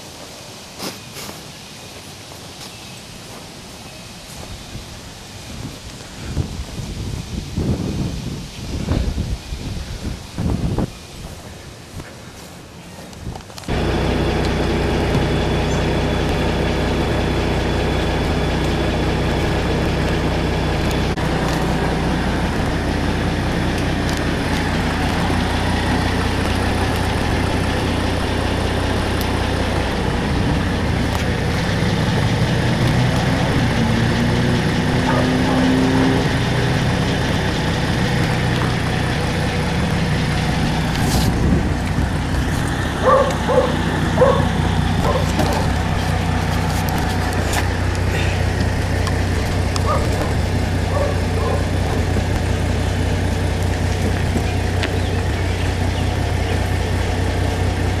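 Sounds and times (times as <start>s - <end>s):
engine idling: 12.4s - 58.0s.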